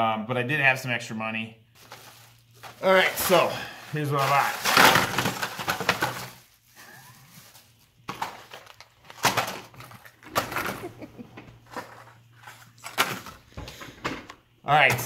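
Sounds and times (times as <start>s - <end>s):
plastic bag crinkling: 1.8s - 11.0s.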